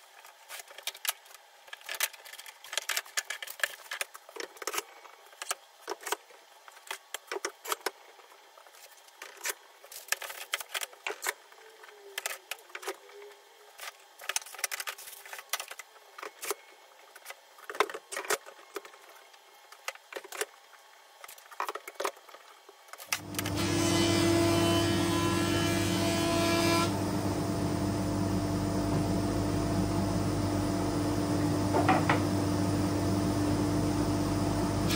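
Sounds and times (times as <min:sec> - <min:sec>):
paper rustling: 0:00.1 - 0:07.9, 0:08.6 - 0:13.0, 0:13.7 - 0:20.5
machine hum: 0:23.1 - 0:34.9.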